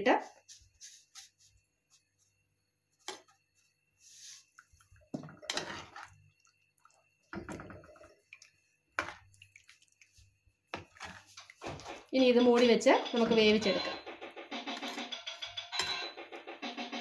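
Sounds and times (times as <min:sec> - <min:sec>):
ladle stirring thick curry: 0:04.1 - 0:12.1.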